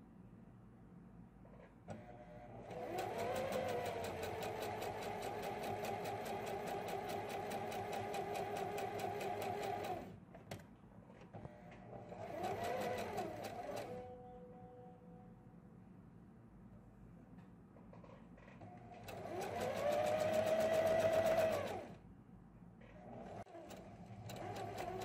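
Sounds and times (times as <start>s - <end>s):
sewing machine stitching: 2.5s - 10.1s, 11.9s - 14.1s, 19.0s - 22.0s, 23.0s - 25.0s.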